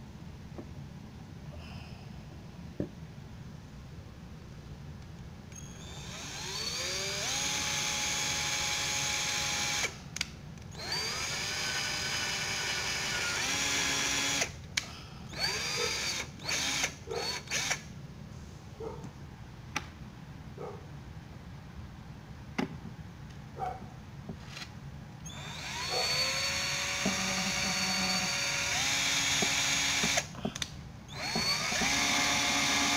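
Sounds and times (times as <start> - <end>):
cordless drill motor whine: 5.5 - 10.0, 10.7 - 14.6, 15.3 - 17.8, 25.2 - 30.3, 31.1 - 32.9.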